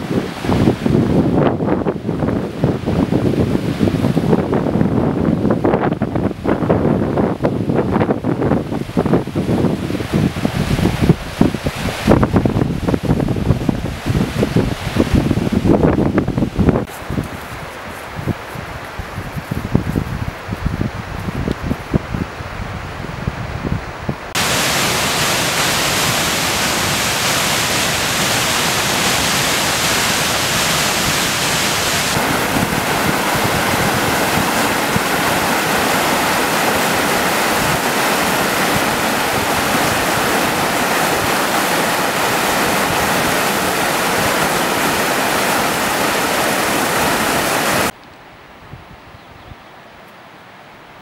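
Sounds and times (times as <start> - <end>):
river rushing over rocks: 0.0 - 16.7, 24.3 - 48.0
wind gusting on microphone: 0.0 - 49.8.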